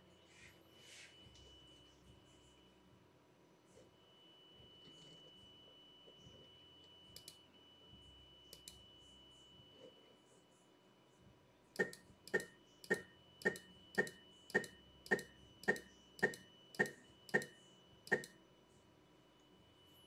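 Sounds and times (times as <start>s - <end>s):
sharp ringing clicks: 8.5s - 8.8s, 11.8s - 18.4s.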